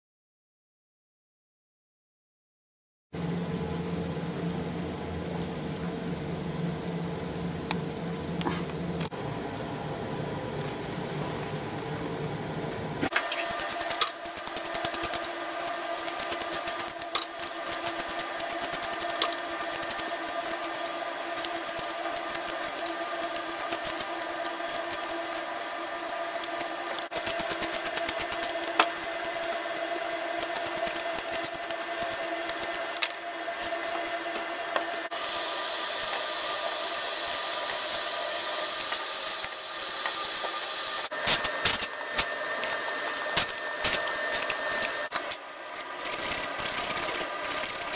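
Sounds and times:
steady mechanical hum: 3.2s - 47.9s
peeler scraping potatoes: 13.2s - 40.5s, 41.2s - 47.9s.

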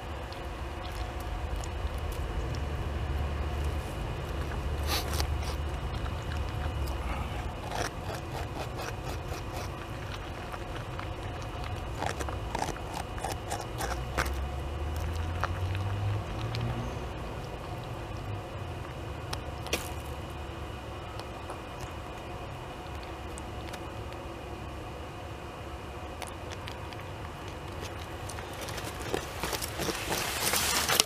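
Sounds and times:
steady low rumble: 0.0s - 31.0s
beaver teeth scraping wood: 4.8s - 14.4s.

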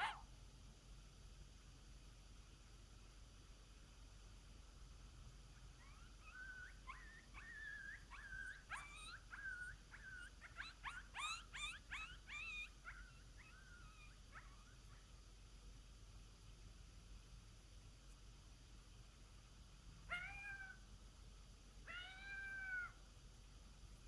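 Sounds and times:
faint coyote yips and howls: 0.0s - 0.3s, 5.6s - 15.2s, 20.0s - 20.9s, 21.8s - 23.0s.

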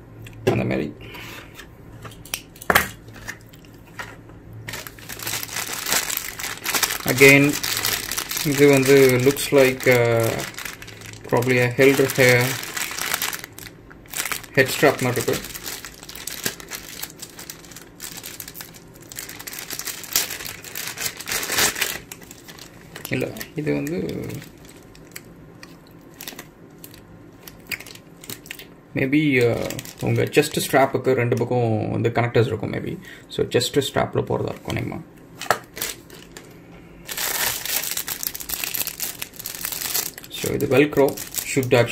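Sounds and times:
plastic zip bag crinkling: 4.7s - 28.6s, 29.4s - 30.6s, 35.6s - 41.9s.

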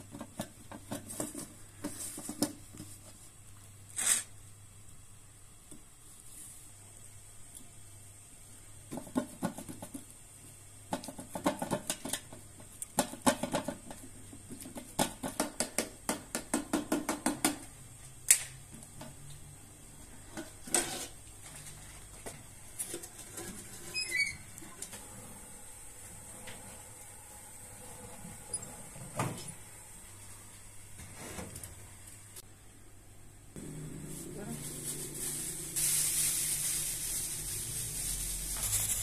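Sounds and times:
oven door squeaking open: 23.7s - 24.6s, 28.4s - 29.0s.

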